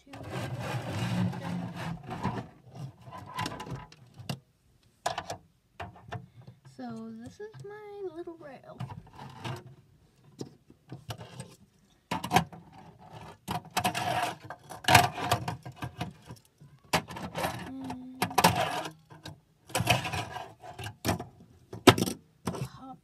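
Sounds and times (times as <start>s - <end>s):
fingerboard wheels rolling and scraping: 0.0s - 4.0s, 12.6s - 16.0s, 17.0s - 19.0s, 19.7s - 21.0s.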